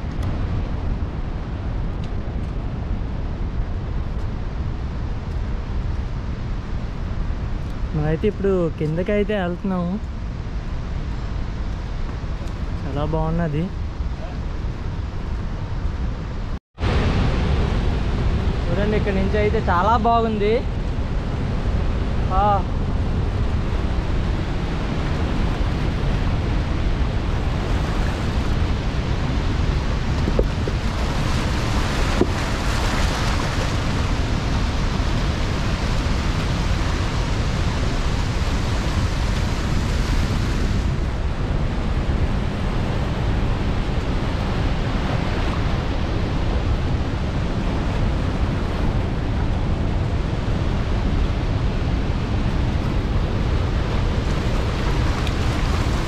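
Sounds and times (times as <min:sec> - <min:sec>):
wind buffeting microphone: 0:00.0 - 0:56.0
waterfall roaring: 0:13.9 - 0:56.0.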